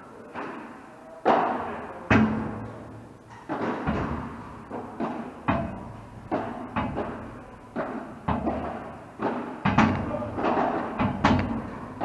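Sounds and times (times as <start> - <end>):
ball bouncing off court: 3.3 - 12.0
ball struck by rackets: 3.4 - 12.0.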